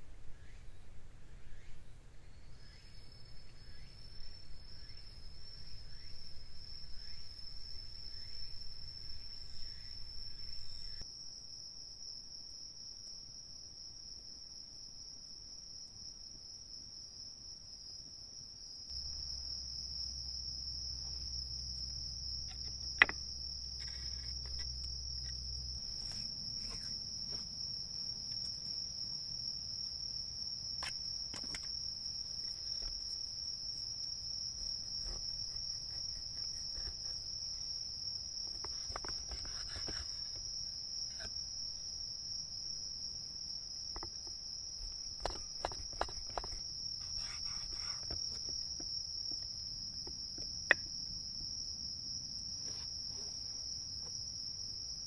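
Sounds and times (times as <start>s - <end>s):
night insects trilling: 2.3s - 55.0s.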